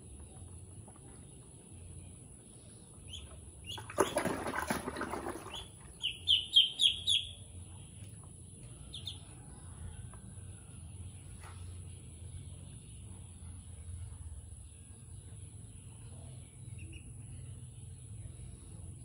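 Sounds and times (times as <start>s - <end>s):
ducklings peeping: 2.6s - 8.1s, 8.7s - 9.3s, 15.8s - 17.7s
water splashing and flapping: 3.7s - 6.1s.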